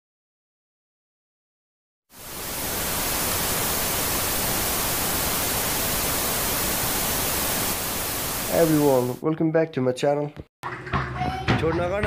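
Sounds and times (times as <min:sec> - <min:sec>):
tv static hiss: 0:02.1 - 0:09.2.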